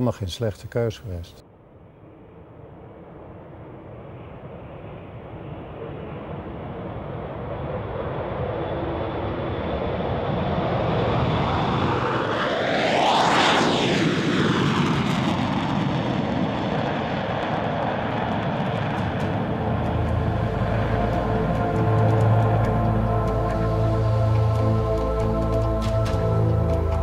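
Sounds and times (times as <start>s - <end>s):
jet engines whining: 2.9s - 27.0s.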